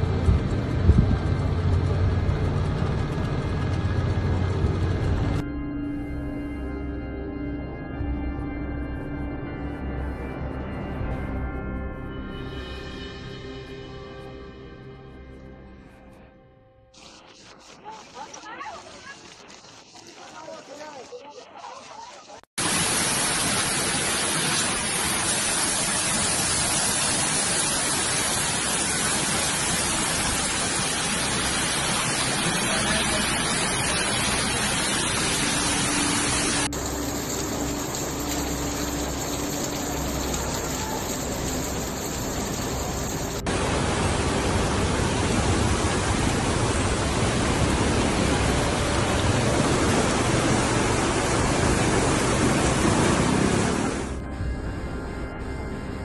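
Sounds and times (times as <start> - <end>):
floodwater rushing: 17.0 - 54.2.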